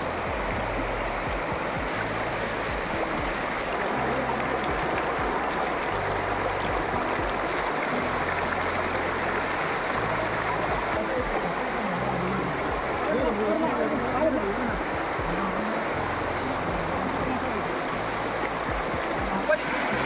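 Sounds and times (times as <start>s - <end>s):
flowing canal water: 0.0s - 20.0s.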